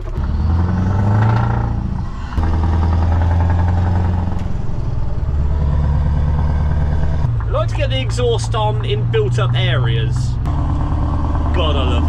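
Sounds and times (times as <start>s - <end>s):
truck diesel engine pulling: 0.0s - 12.0s.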